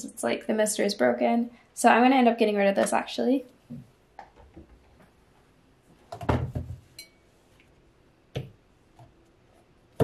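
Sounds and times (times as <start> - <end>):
plastic bottles knocking on wooden shelf: 6.1 - 6.8.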